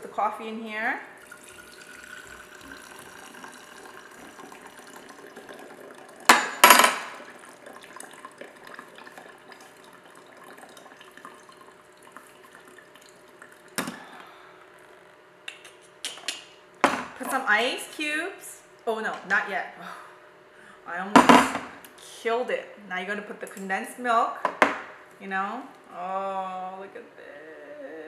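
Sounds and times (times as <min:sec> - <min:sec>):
coffee pouring into glass jar: 0:01.2 - 0:13.8.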